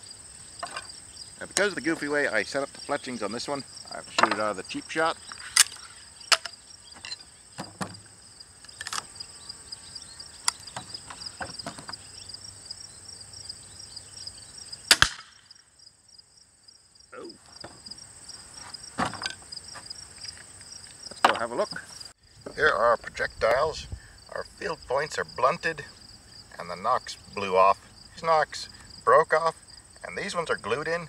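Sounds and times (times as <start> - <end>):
insects chirping: 0.0 - 31.0
crossbow firing crack: 5.5 - 6.5, 14.9 - 15.5
crossbow handling clicks: 5.6 - 7.2, 8.6 - 9.1.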